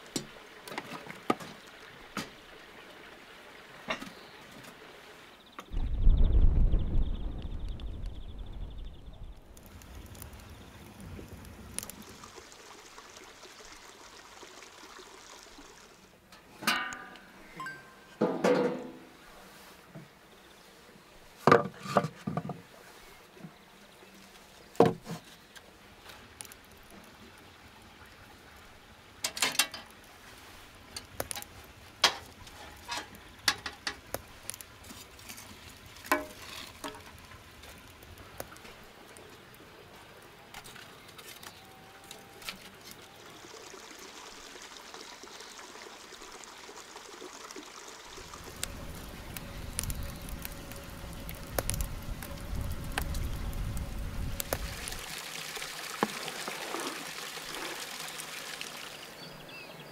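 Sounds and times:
fire crackling: 5.7s - 13.8s, 25.8s - 27.6s, 29.8s - 43.1s, 48.0s - 56.0s
log fire rushing: 5.7s - 13.8s, 30.0s - 41.5s, 48.0s - 58.2s
firewood and tongs clattering: 16.3s - 19.1s, 29.2s - 30.0s, 30.9s - 38.8s.

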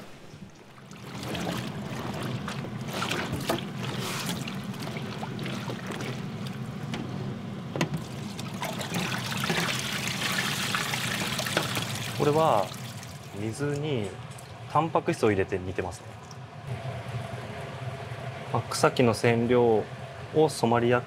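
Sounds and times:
steady low hum: 0.0s - 21.0s
water trickling and dripping: 8.0s - 13.4s.

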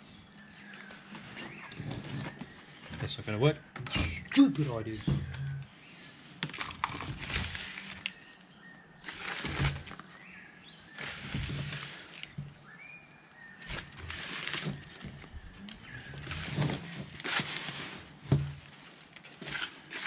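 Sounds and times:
hands mixing sand in plastic bucket: 9.1s - 12.8s, 15.9s - 20.0s.

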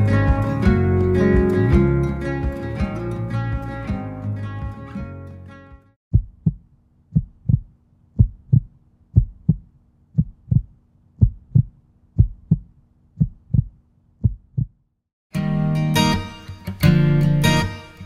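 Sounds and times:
heartbeat-like double thumps: 6.1s - 14.8s.

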